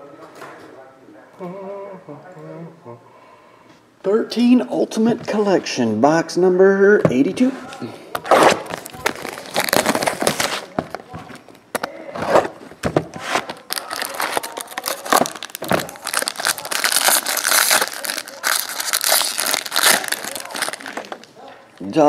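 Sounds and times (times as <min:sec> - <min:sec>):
foil wrapper crinkling and tearing: 0:08.2 - 0:11.0, 0:13.3 - 0:22.0.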